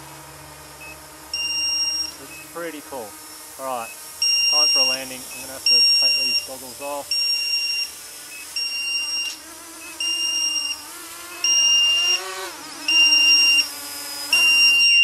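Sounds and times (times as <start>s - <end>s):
electric motors whining: 0.0s - 15.0s
high steady alarm beeps: 0.8s - 2.5s, 3.2s - 10.8s, 11.4s - 12.2s, 12.9s - 13.7s, 14.3s - 15.0s.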